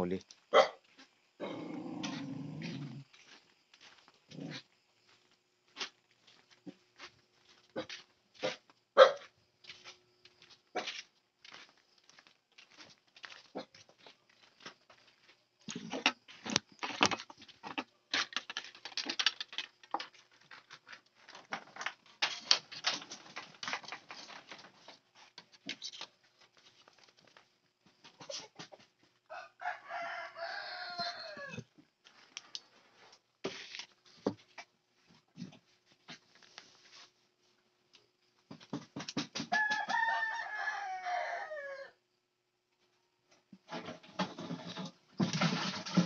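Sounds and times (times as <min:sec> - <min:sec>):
rooster crowing: 0:29.3 - 0:31.7, 0:39.5 - 0:42.0.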